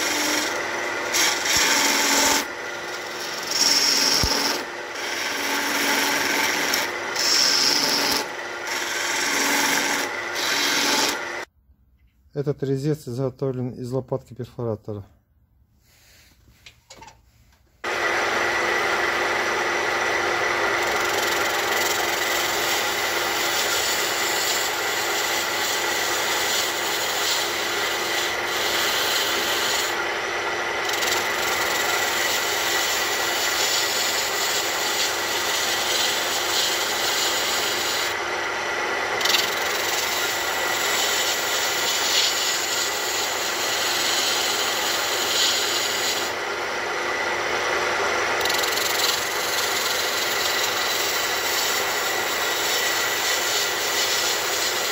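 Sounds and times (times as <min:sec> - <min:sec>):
lathe tool scraping wood: 0:00.0 - 0:11.5, 0:17.8 - 0:54.9
lathe whine: 0:00.0 - 0:11.5, 0:17.8 - 0:54.9.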